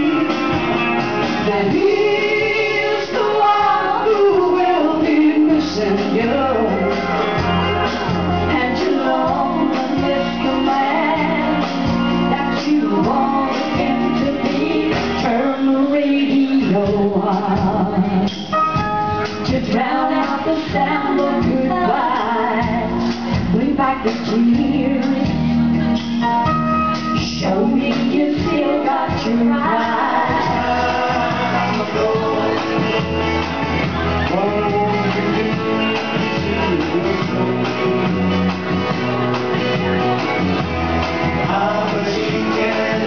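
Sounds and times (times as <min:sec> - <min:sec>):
karaoke backing track over speakers: 0:00.0 - 0:43.0
woman singing into microphone: 0:01.4 - 0:07.1, 0:08.4 - 0:18.4, 0:19.4 - 0:25.5, 0:27.2 - 0:32.3.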